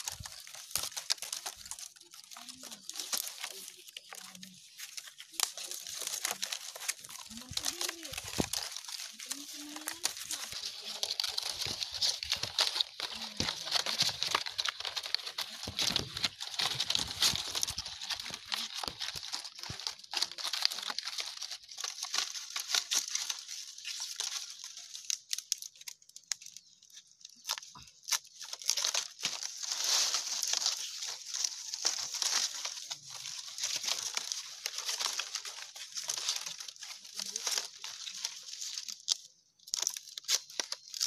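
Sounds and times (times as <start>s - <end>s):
palm leaves rustling and crackling: 0.0s - 41.0s.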